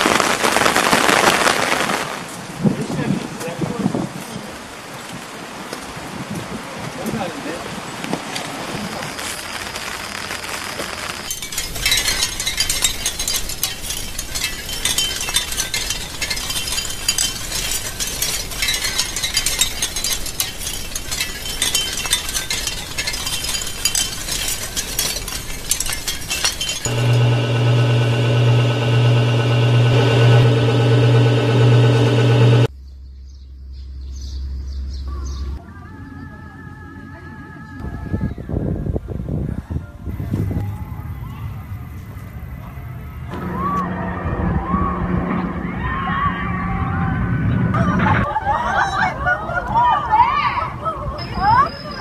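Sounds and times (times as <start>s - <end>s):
small metallic clinking: 11.3s - 28.3s
loud low hum: 26.9s - 34.8s, 43.3s - 48.2s.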